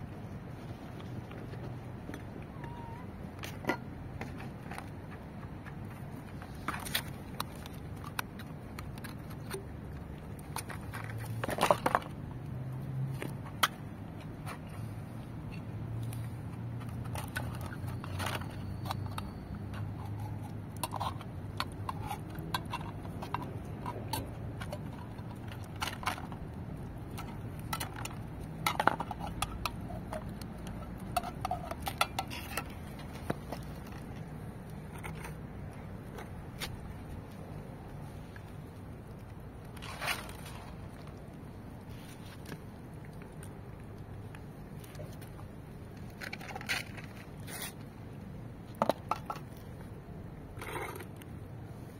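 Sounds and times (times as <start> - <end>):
metal can clinking and scraping: 16.9 - 26.5, 27.1 - 34.1.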